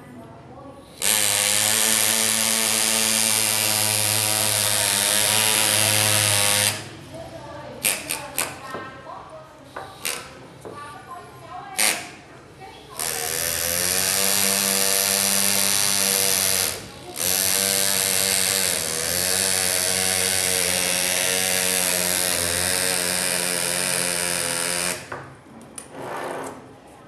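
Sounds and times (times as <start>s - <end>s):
pneumatic engraver buzzing: 0.8s - 6.9s, 7.8s - 8.7s, 9.7s - 10.4s, 11.8s - 12.2s, 12.9s - 25.4s.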